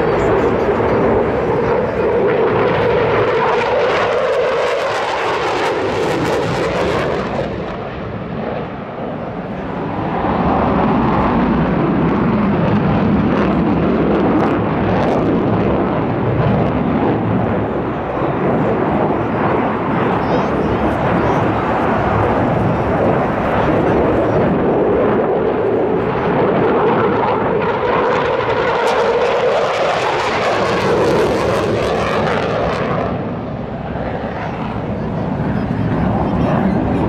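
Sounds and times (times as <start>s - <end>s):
jet engines roaring: 0.0s - 37.0s.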